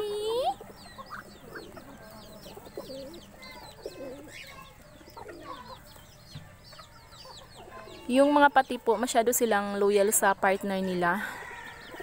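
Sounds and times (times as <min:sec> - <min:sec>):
bird clucking calls: 0:00.0 - 0:08.6
birds chirping: 0:00.0 - 0:12.0.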